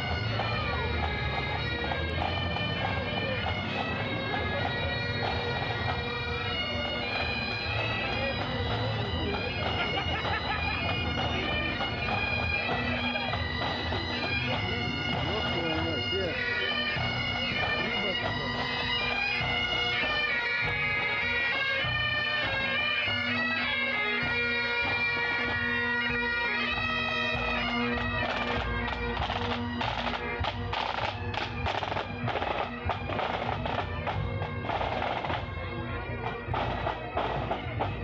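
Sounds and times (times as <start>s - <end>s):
bagpipes playing a tune: 0.0s - 38.0s
marching drums beating: 0.0s - 38.0s.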